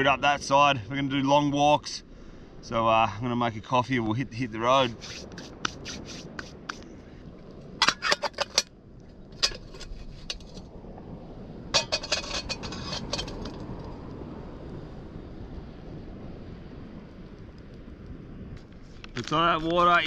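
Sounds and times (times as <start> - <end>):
steady low hiss: 0.0 - 20.0
metal cans clinking and clattering: 7.8 - 8.7, 9.4 - 10.6, 11.8 - 13.5.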